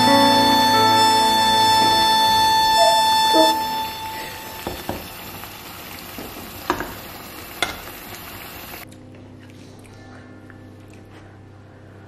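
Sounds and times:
background music: 0:00.0 - 0:04.0.

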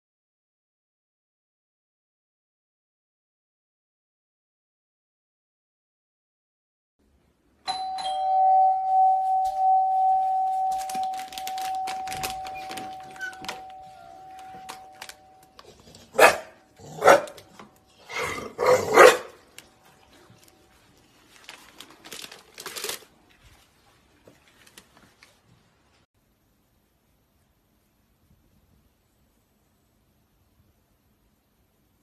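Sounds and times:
doorbell chime: 0:07.7 - 0:15.6
dog barking: 0:16.1 - 0:17.4, 0:18.1 - 0:19.4.

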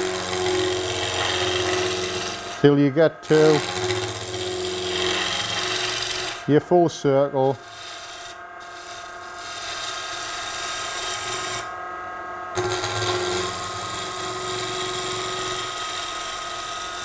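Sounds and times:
gouge cutting wood shavings: 0:00.0 - 0:06.4, 0:12.6 - 0:16.6
lathe motor hum: 0:00.0 - 0:06.6, 0:07.4 - 0:11.8, 0:12.6 - 0:17.0.

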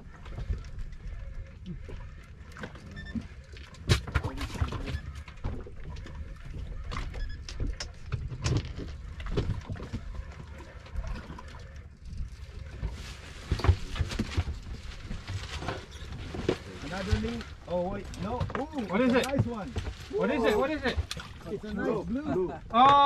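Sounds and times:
knocks and clicks from boat gear: 0:02.5 - 0:10.5, 0:18.0 - 0:19.9, 0:20.9 - 0:21.4.

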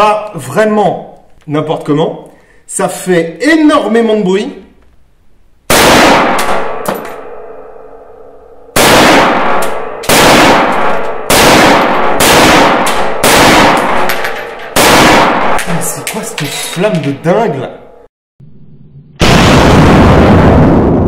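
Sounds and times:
rifle shots: 0:05.7 - 0:07.4, 0:08.7 - 0:16.0
metallic ringing and echo: 0:06.6 - 0:08.8, 0:09.7 - 0:10.1, 0:13.9 - 0:14.8, 0:15.4 - 0:18.1.

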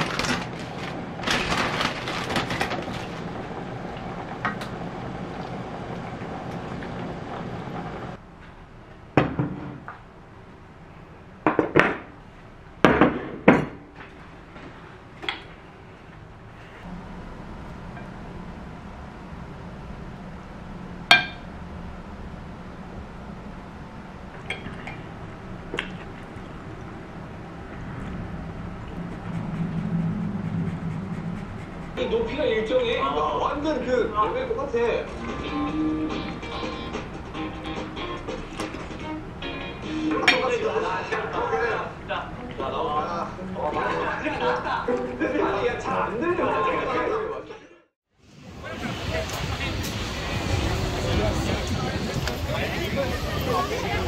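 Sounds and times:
steady low hum: 0:13.8 - 0:44.9.

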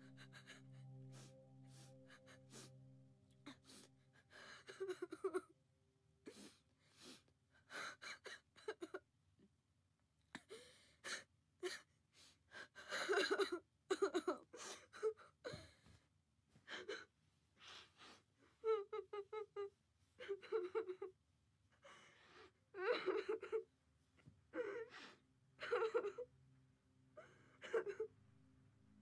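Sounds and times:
boy sobbing: 0:00.0 - 0:05.5, 0:07.6 - 0:09.0, 0:12.6 - 0:15.8, 0:18.6 - 0:21.1, 0:22.8 - 0:23.6, 0:25.6 - 0:26.2, 0:27.2 - 0:28.1.

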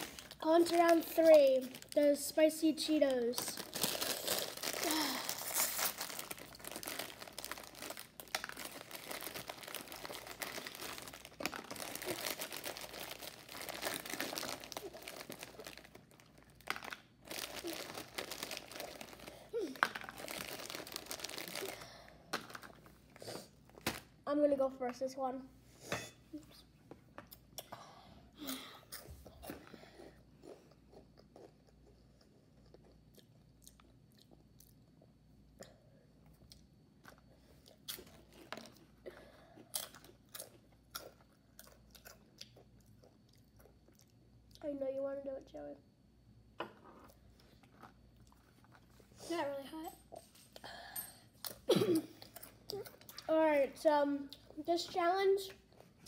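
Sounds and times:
snack bag crinkling: 0:00.0 - 0:23.0
crunchy snack being chewed: 0:03.6 - 0:22.7, 0:28.9 - 0:35.1, 0:36.2 - 0:38.9, 0:39.6 - 0:44.6, 0:46.8 - 0:49.0.

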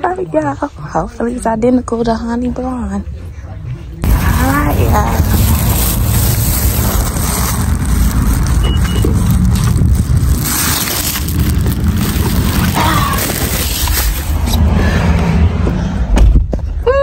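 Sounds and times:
wind rumble on microphone: 0:04.0 - 0:16.6.

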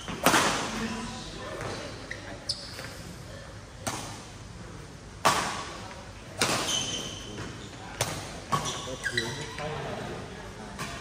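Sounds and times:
racket smacking shuttlecock: 0:00.1 - 0:00.7, 0:06.4 - 0:07.1
short high squeak: 0:08.6 - 0:09.6.

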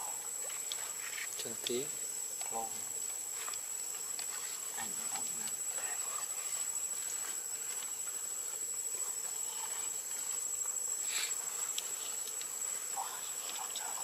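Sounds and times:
high-pitched insect drone: 0:00.0 - 0:14.0
faint ticks: 0:00.4 - 0:01.8, 0:11.1 - 0:14.0.

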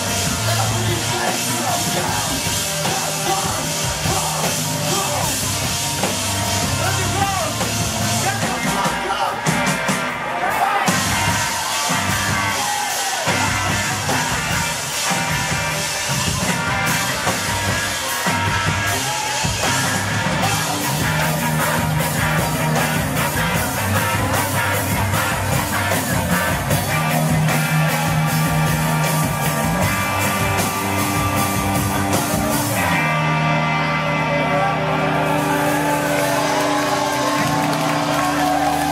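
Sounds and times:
live rock band playing: 0:00.0 - 0:38.9.

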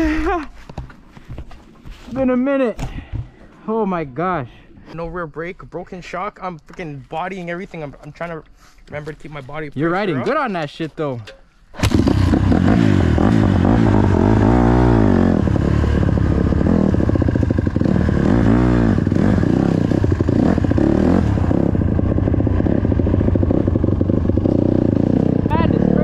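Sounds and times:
dirt bike engine revving: 0:11.8 - 0:26.0.

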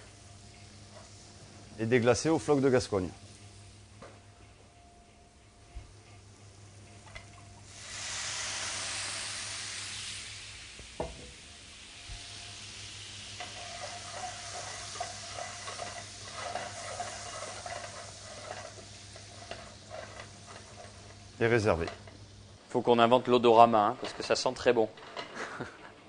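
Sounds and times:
loud sizzle in hot pan: 0:00.0 - 0:03.9, 0:07.6 - 0:25.7
utensil stirring against pan: 0:12.2 - 0:22.5, 0:23.3 - 0:25.7.

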